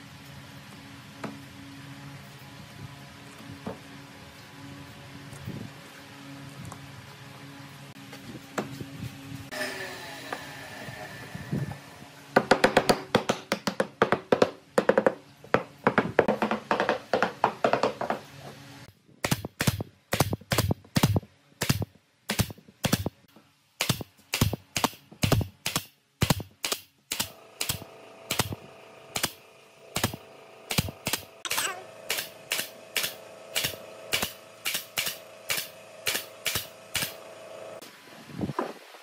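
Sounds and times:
hammer knocking on wood: 12.4s - 18.2s.

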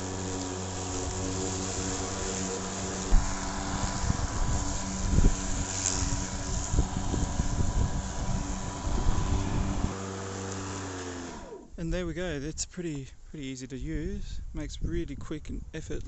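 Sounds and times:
lawn mower humming: 0.0s - 11.9s.

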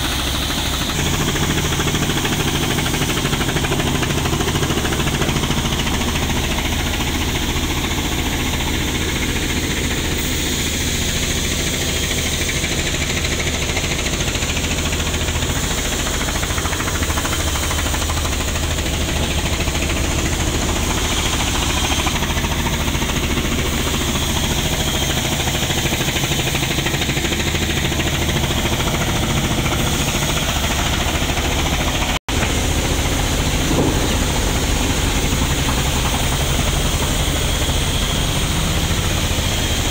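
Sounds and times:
engine humming: 15.2s - 39.9s.

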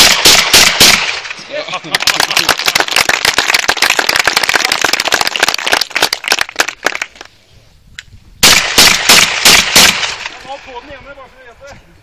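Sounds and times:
shotgun shot: 0.0s - 1.4s, 8.4s - 10.4s
audience clapping: 1.9s - 7.3s.

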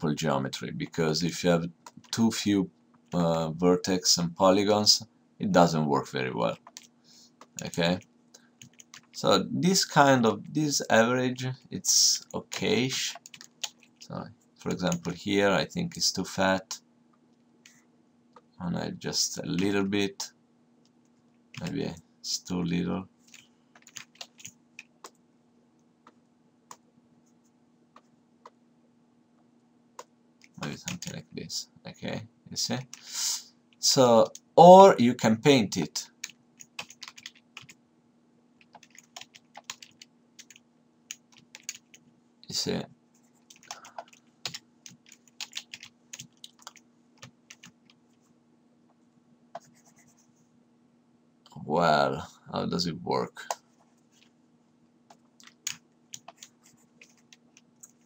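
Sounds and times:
faint steady hum: 0.0s - 58.0s
computer keyboard keys clicking: 6.5s - 6.9s, 8.6s - 9.2s, 13.0s - 14.0s, 23.3s - 25.2s, 36.2s - 37.8s, 38.6s - 42.0s, 43.5s - 48.0s, 55.4s - 58.0s.

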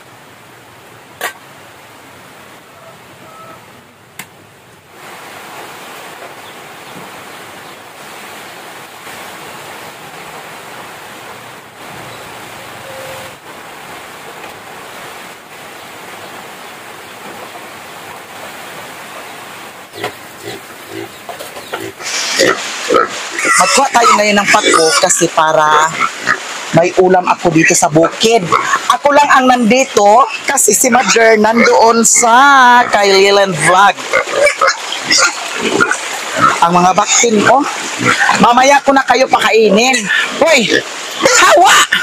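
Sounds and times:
steady rain falling: 0.0s - 42.0s.

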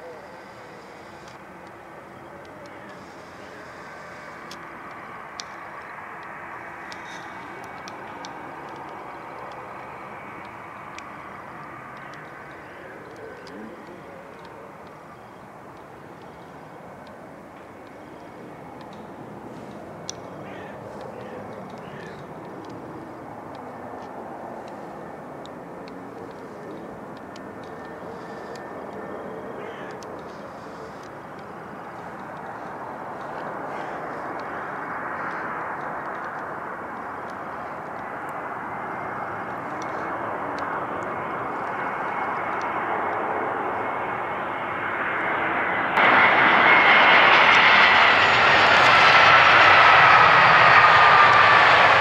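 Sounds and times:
faint steady tone: 0.0s - 21.5s
jet engines roaring: 0.0s - 52.0s
faint clicks: 2.4s - 9.8s, 11.9s - 20.3s, 35.2s - 38.1s.

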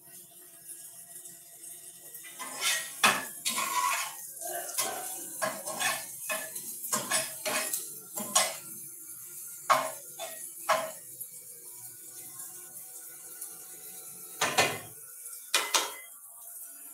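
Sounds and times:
metal spatula scraping frying pan: 2.2s - 8.6s, 9.7s - 11.0s.

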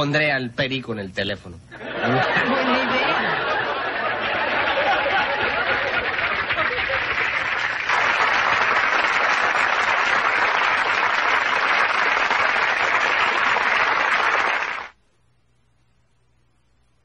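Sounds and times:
studio audience applauding: 2.1s - 15.0s.

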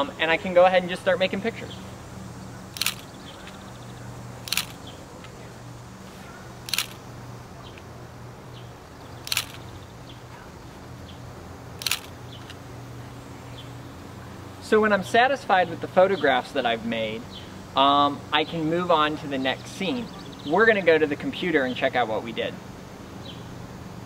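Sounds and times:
camera shutter firing: 2.8s - 3.6s, 4.4s - 4.9s, 6.6s - 7.0s, 9.2s - 9.7s, 11.8s - 12.6s.

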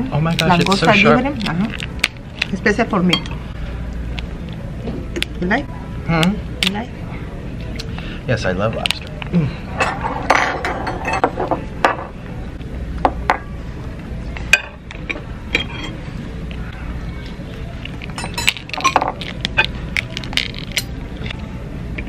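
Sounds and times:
low room hum: 0.0s - 22.0s
utensils clinking on plates: 9.7s - 12.2s, 14.4s - 16.1s, 17.8s - 21.4s.

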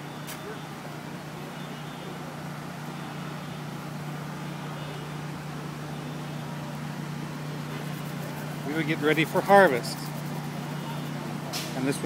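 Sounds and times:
constant low hum: 0.0s - 12.0s.

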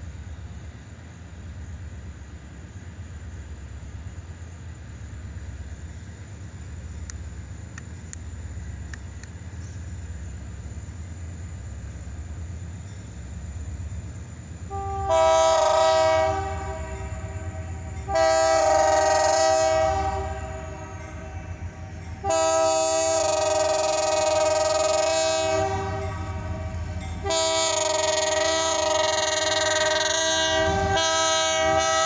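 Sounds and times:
locomotive rumble: 0.0s - 32.0s
locomotive air horn blasts: 14.7s - 32.0s.

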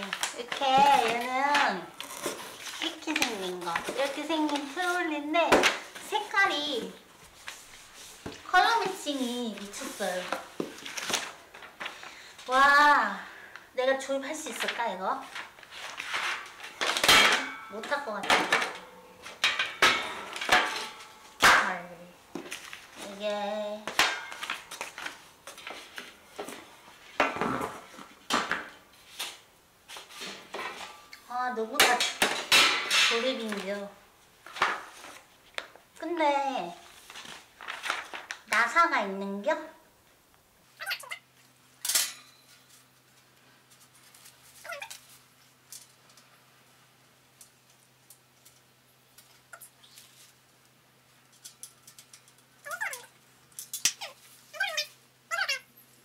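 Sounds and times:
paper rustling: 0.0s - 12.3s, 14.5s - 17.1s, 36.8s - 38.6s
steel panels clinking and knocking: 16.3s - 21.8s, 23.9s - 24.8s.

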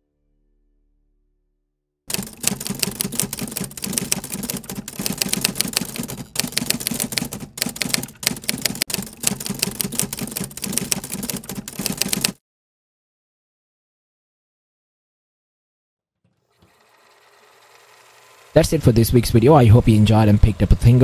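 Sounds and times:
keyboard typing: 2.1s - 12.4s.

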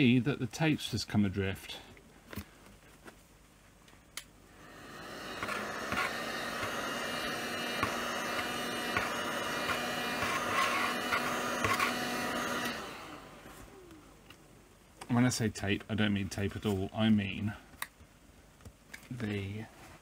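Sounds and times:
hot air gun blowing: 4.6s - 13.5s.

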